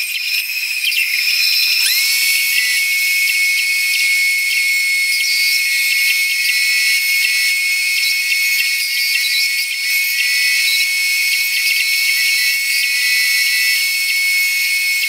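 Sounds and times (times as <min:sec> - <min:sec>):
bandsaw cutting a board: 0:00.0 - 0:15.0.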